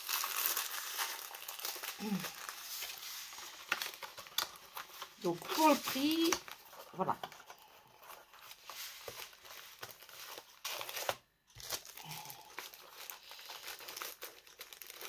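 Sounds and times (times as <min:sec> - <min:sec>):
crinkling packaging: 0:00.0 - 0:15.0.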